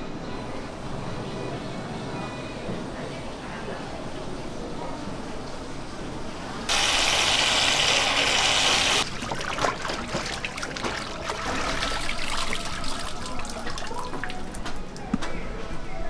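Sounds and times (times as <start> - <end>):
water rushing: 6.7 - 14.0
tap water splashing into basin: 9.0 - 14.6.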